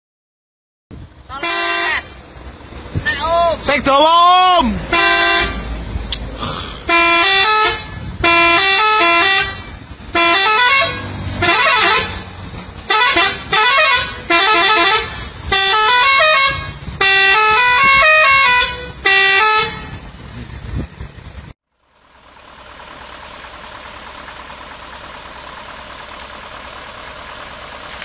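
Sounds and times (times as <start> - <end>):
truck melody horn playing tune: 1.3 - 2.5, 4.4 - 5.9, 6.6 - 20.3.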